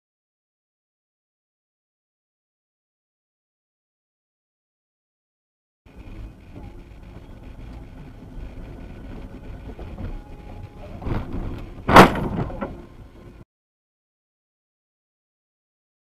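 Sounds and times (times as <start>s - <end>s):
car driving hum: 5.9s - 13.4s
vehicle collision crash: 10.9s - 13.0s.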